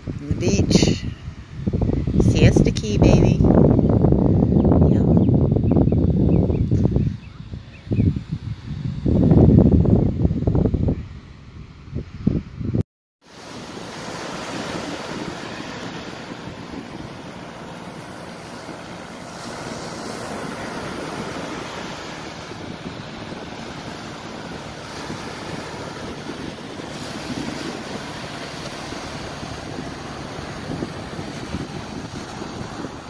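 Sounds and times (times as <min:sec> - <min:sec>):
wind buffeting microphone: 0:00.0 - 0:33.0
small waves washing onto beach: 0:13.2 - 0:33.0.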